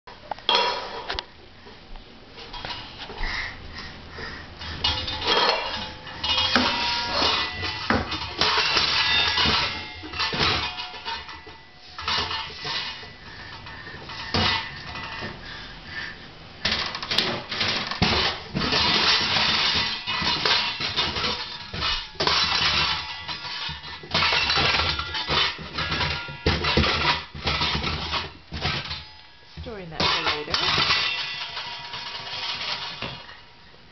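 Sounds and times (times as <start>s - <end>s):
metal cookware clattering: 0.5s - 1.2s, 4.6s - 13.1s, 16.7s - 29.1s, 29.7s - 33.4s.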